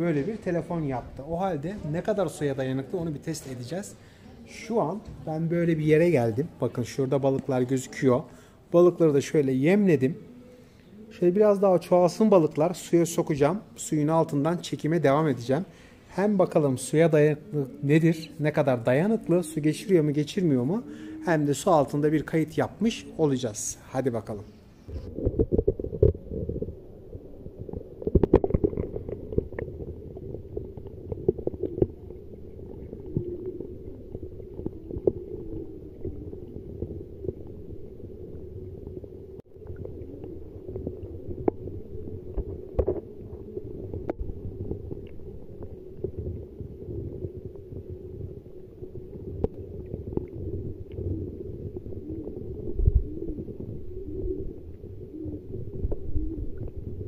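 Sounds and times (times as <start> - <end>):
dull underwater rumble: 24.6 - 57.0.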